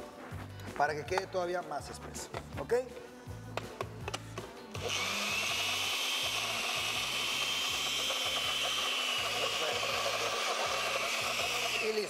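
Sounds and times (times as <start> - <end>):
blender running with high whine: 4.7 - 12.0.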